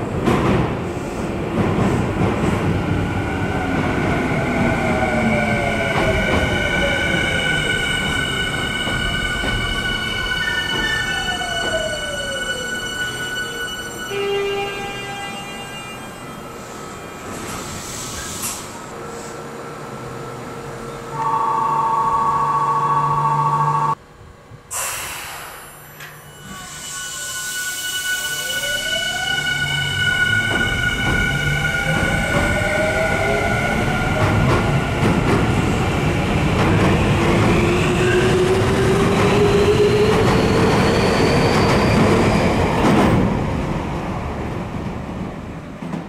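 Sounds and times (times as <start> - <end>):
train electrical whine and hum: 14.7 - 28.0
short burst of hiss: 24.7 - 25.8.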